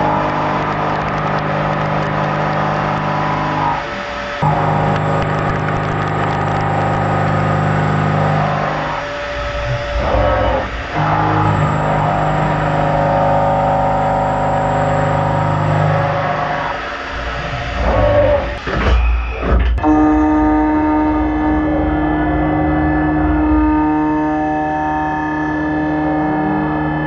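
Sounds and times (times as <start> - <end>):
milling cutter cutting metal: 0.0 - 18.8.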